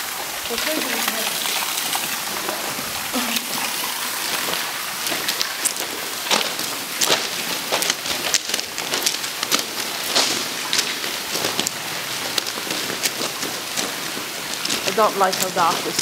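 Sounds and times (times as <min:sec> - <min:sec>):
running and dripping water: 0:00.0 - 0:16.0
footsteps crunching on gravel: 0:04.0 - 0:16.0.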